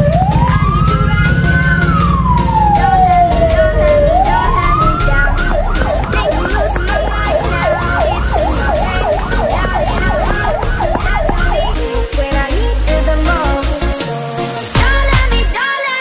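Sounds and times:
electronic siren wailing and yelping: 0:00.0 - 0:12.2
low rumble: 0:01.5 - 0:13.7.

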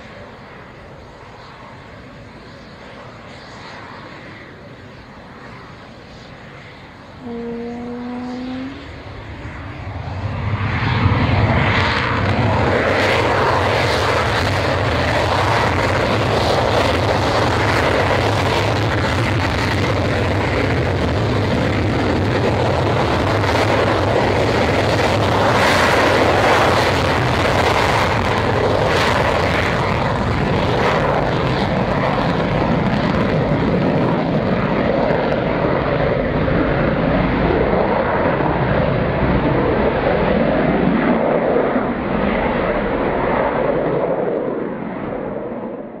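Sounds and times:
jet roar with afterburner crackle: 0:00.0 - 0:46.0.

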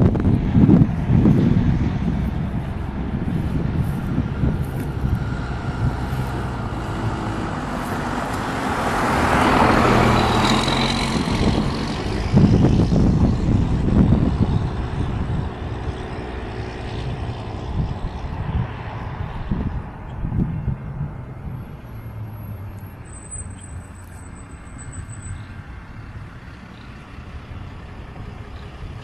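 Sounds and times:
rough low rumble: 0:00.0 - 0:21.8
steady low engine hum: 0:00.0 - 0:23.0
vehicle passing: 0:00.0 - 0:29.0.

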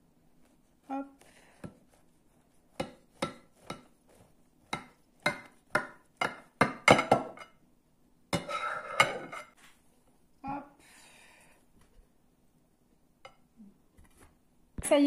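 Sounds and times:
knife and tongs scraping dish: 0:08.4 - 0:09.6.

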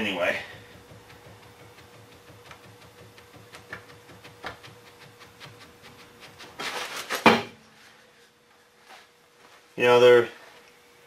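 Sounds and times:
sharp metal clunk: 0:07.2 - 0:07.7.

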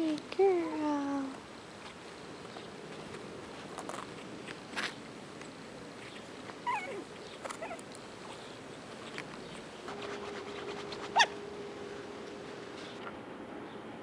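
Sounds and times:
puppy whimpering: 0:06.6 - 0:07.8
puppy yipping: 0:06.6 - 0:07.8, 0:11.1 - 0:11.4.

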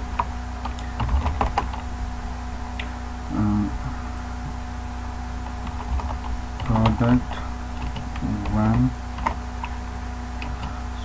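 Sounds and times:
steady low hum: 0:00.0 - 0:11.0
computer keyboard typing: 0:00.2 - 0:01.8, 0:05.4 - 0:09.8, 0:10.4 - 0:10.8.

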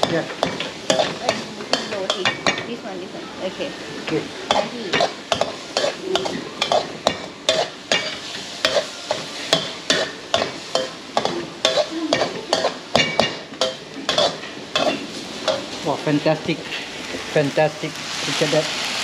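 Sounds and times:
stir-fry sizzling: 0:00.0 - 0:19.0
metal spatula scraping wok: 0:00.2 - 0:02.6, 0:04.6 - 0:15.8, 0:16.5 - 0:17.4.

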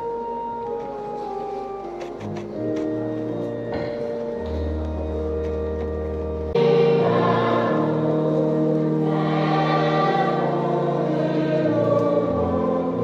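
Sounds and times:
held accompaniment chords: 0:00.0 - 0:13.0
congregation singing a hymn: 0:06.5 - 0:13.0.

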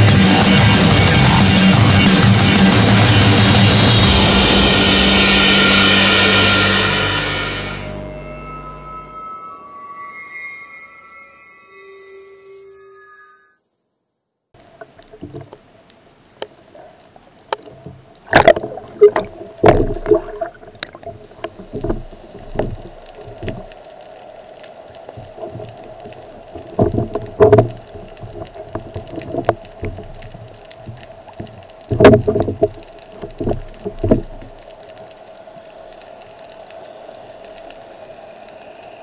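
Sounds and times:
underwater hum: 0:02.8 - 0:13.5, 0:14.6 - 0:39.0
bubbling gurgles: 0:18.2 - 0:23.7
sharp knocks: 0:18.3 - 0:20.6.

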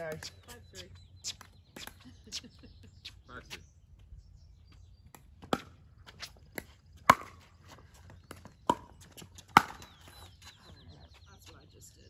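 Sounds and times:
paddles hitting plastic ball: 0:08.2 - 0:10.2.

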